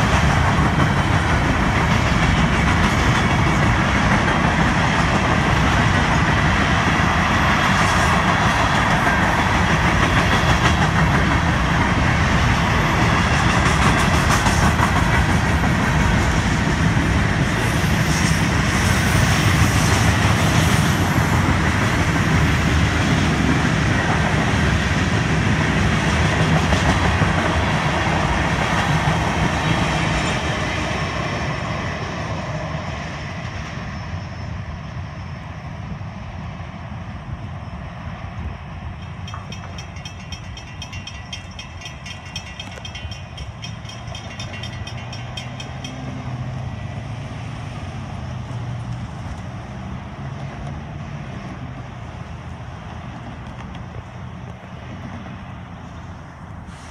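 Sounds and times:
rail clicks: 0.0s - 31.6s, 38.6s - 47.3s, 52.8s - 55.4s
train wheels rolling on rails: 0.0s - 56.9s.

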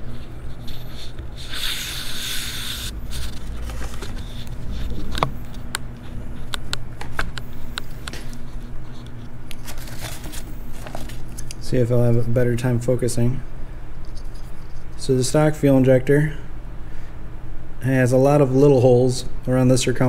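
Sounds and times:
low steady hum: 0.0s - 20.0s
paper rustling: 2.6s - 5.2s, 9.5s - 11.4s.

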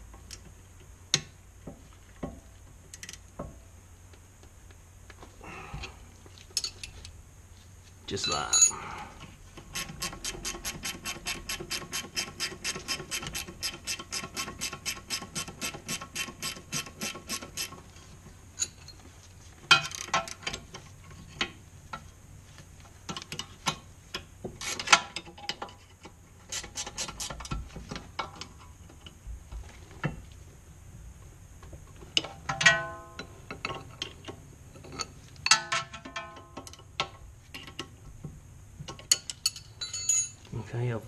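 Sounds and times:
spanners clinking on metal: 39.0s - 40.4s.

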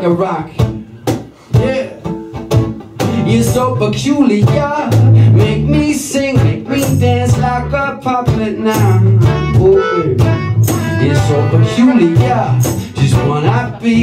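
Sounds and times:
acoustic guitar: 0.0s - 14.0s
steady percussion beat: 0.5s - 14.0s
electric bass: 1.6s - 14.0s
man singing: 3.0s - 14.0s.

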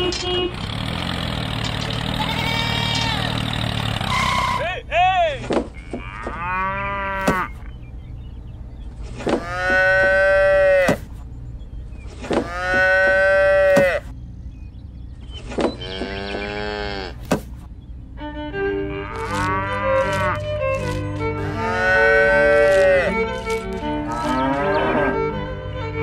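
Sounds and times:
cattle mooing: 2.0s - 3.5s, 5.8s - 7.6s, 9.3s - 11.0s, 12.3s - 14.1s, 15.8s - 17.2s, 18.7s - 25.4s.

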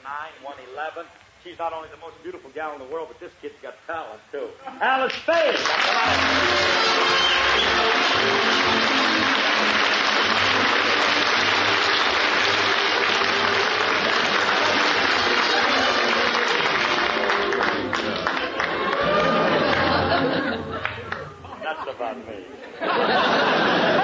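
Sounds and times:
audience applauding: 5.3s - 21.5s.

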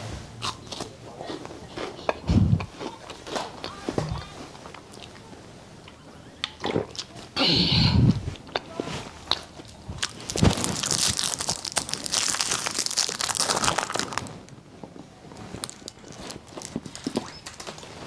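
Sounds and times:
candy wrapper crinkling: 9.7s - 14.6s, 15.3s - 17.9s.

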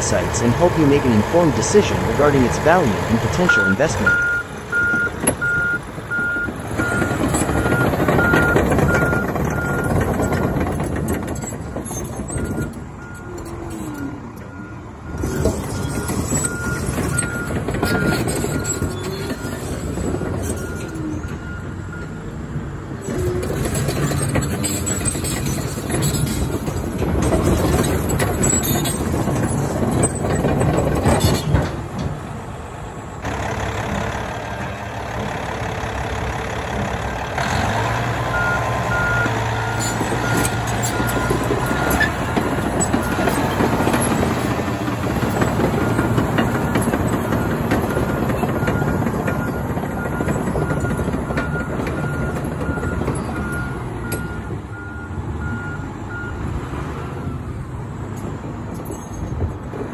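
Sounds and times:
backup alarm beeping: 0.0s - 9.9s
bulldozer diesel engine: 0.0s - 59.9s
steel tracks clattering on gravel: 23.5s - 32.4s, 39.2s - 54.0s.

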